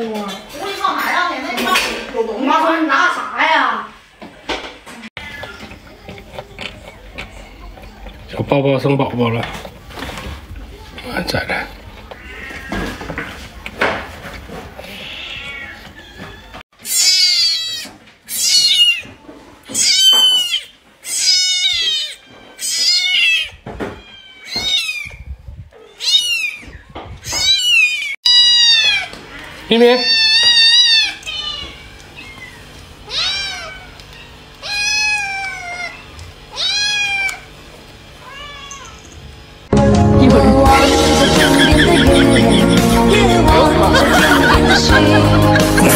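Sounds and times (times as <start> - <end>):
kitten meowing: 15.0 - 19.0, 25.9 - 29.1, 30.0 - 34.0, 34.6 - 37.4.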